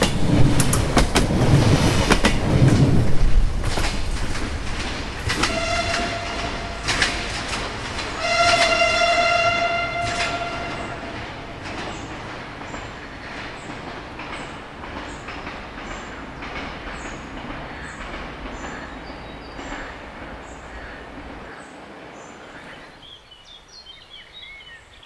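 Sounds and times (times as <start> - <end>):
sharp clicks from rails: 0.0 - 21.6
train running noise: 0.0 - 23.0
train horn blast: 5.4 - 11.7.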